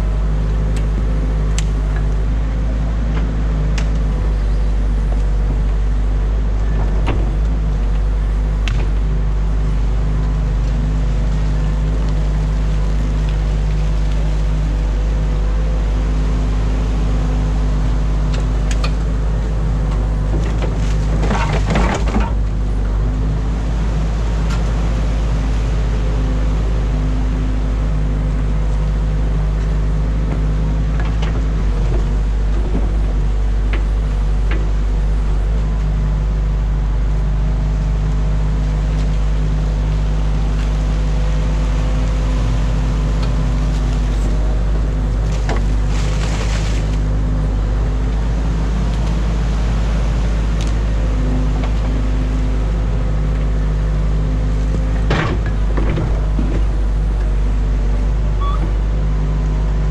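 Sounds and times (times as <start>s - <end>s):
excavator diesel engine running: 0.0s - 59.9s
knocks and scraping: 20.3s - 22.5s.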